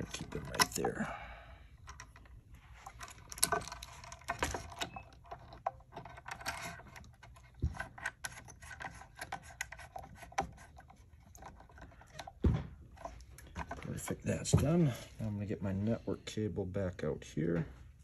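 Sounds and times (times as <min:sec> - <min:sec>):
rubbing and scraping: 0:02.6 - 0:16.2.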